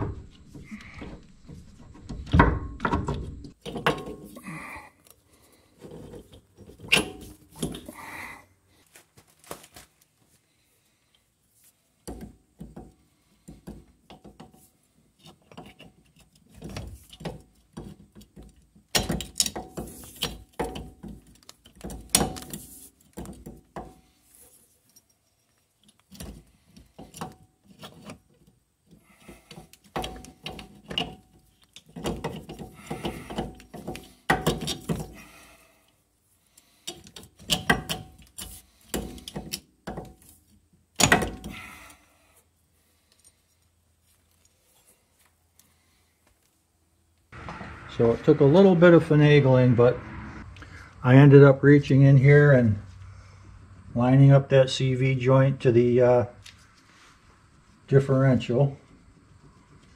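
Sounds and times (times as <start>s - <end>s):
metal clunks and knocks: 0.0s - 4.4s.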